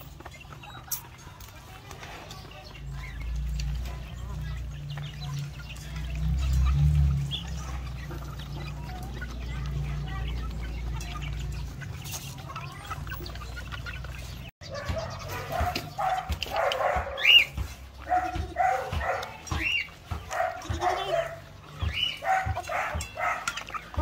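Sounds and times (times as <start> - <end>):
chickens clucking: 0.0 - 24.0
dog barking: 14.6 - 21.4, 22.0 - 23.6.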